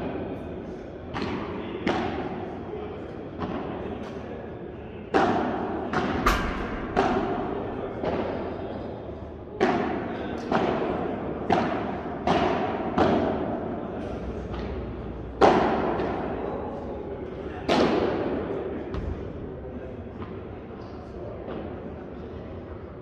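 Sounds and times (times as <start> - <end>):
rackets striking balls: 5.1 - 8.6
balls bouncing off court and glass: 6.0 - 8.4.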